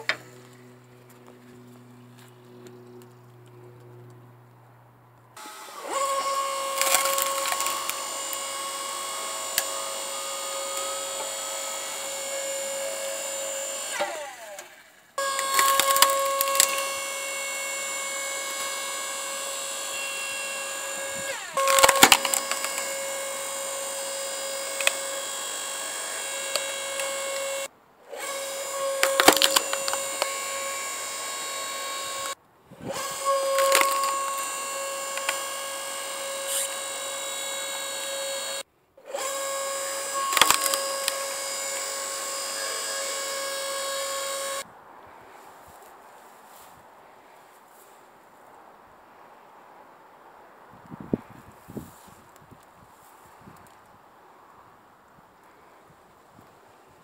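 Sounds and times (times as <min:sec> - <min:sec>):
hydraulic pump motor whining: 0:00.0 - 0:01.3, 0:05.4 - 0:44.6
logs cracking and splintering: 0:05.9 - 0:11.5, 0:15.3 - 0:17.0, 0:21.0 - 0:23.2, 0:24.5 - 0:27.6, 0:28.8 - 0:30.4, 0:32.9 - 0:35.5, 0:40.2 - 0:41.4.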